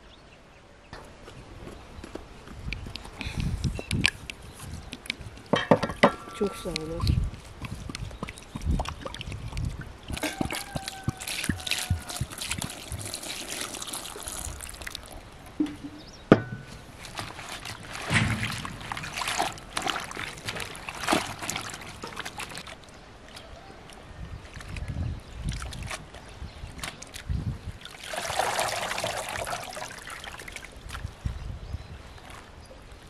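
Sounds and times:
water sloshing in basin: 17.0 - 22.8, 27.8 - 31.0.

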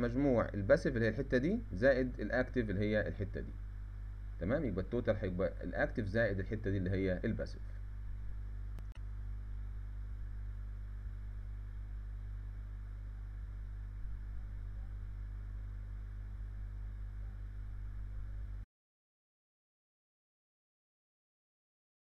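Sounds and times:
low electrical hum: 0.0 - 18.7.

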